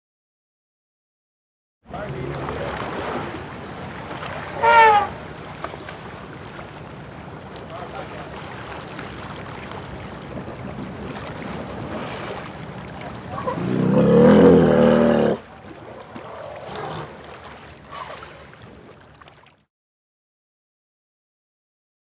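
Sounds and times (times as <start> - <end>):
elephant calling: 4.5 - 5.2, 13.3 - 15.4.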